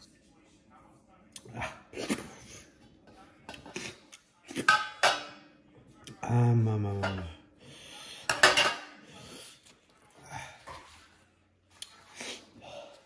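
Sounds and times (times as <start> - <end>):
ceramic bowl clinking on metal plate: 4.6 - 5.4, 8.3 - 8.9.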